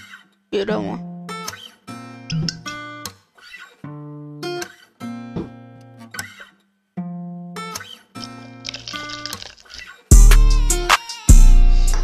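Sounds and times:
strummed guitar chords: 10.1 - 12.0.

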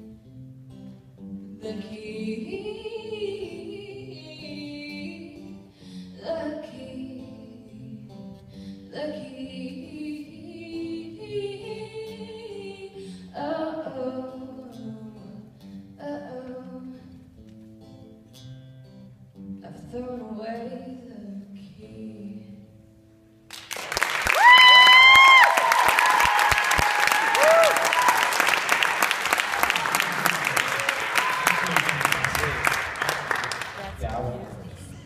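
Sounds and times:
acoustic guitar: 0.0 - 23.9
woman singing: 1.5 - 17.3, 19.6 - 22.8.

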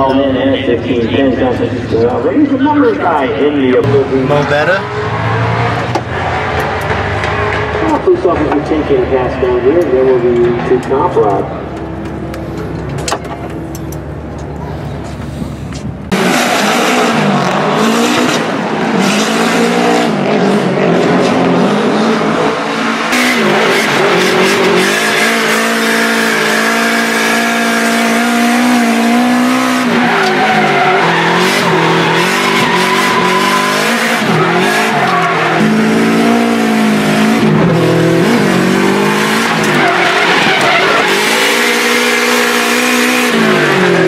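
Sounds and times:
tyres squealing and skidding: 1.2 - 11.6, 16.2 - 44.0
car engine revving hard: 3.9 - 8.2, 16.1 - 44.0.

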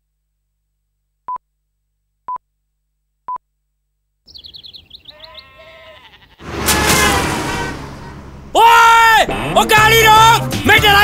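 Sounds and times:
whistled bird calls: 4.3 - 5.6
birds chirping: 4.3 - 6.4.

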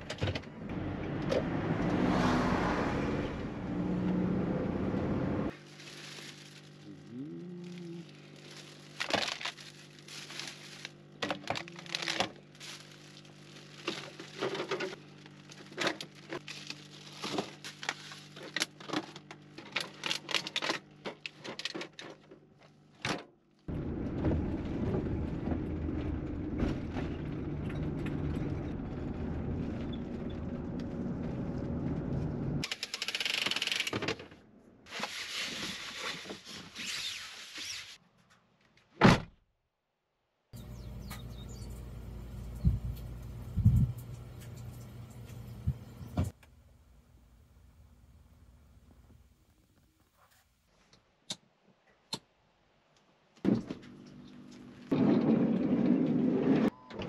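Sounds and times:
plastic bag rustling: 5.5 - 22.3
low rumble: 23.7 - 32.6.

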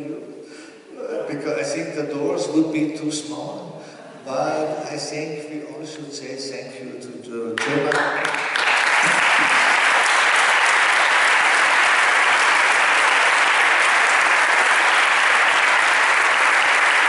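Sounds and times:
roomful of people clapping: 7.6 - 17.0.

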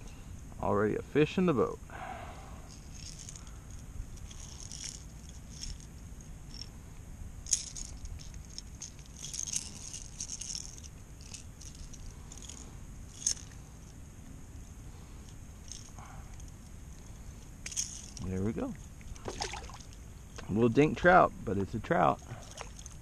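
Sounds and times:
low steady rumble: 0.0 - 23.0
clicks and rattles of fishing lure: 22.3 - 23.0.

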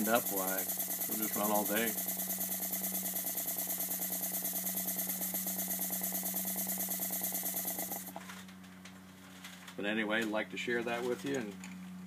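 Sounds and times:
model steam engine chuffing: 0.0 - 8.1.

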